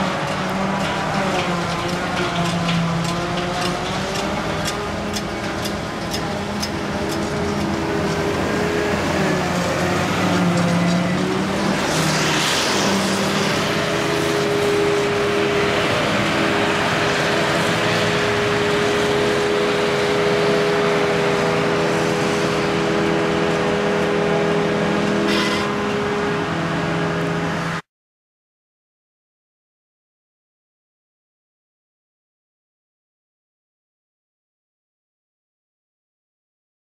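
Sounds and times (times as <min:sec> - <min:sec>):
harvester engine droning: 0:00.0 - 0:27.8
tractor engine running: 0:00.0 - 0:27.8.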